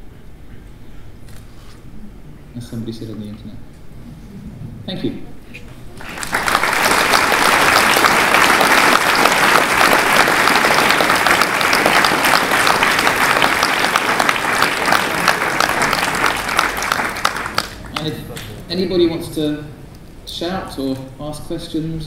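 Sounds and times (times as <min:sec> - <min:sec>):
audience applauding: 0:05.9 - 0:18.2.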